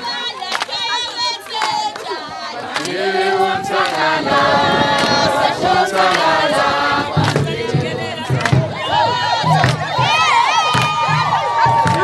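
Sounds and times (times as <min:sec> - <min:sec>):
women singing in chorus: 0:00.0 - 0:12.0.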